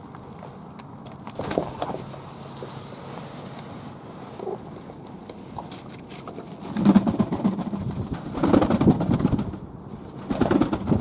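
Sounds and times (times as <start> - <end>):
pigeons cooing: 4.3 - 4.9
wings flapping in water: 10.2 - 11.0.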